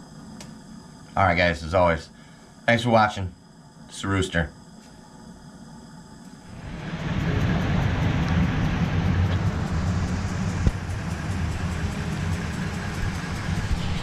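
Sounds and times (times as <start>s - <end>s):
traffic rumble on wet road: 6.5s - 14.0s.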